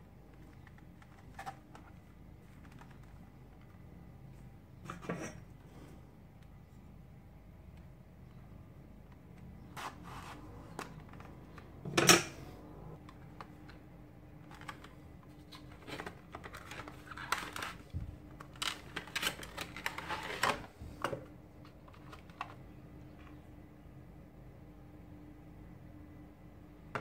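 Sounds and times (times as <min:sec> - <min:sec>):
cardboard and plastic rustling: 0:14.4 - 0:22.7.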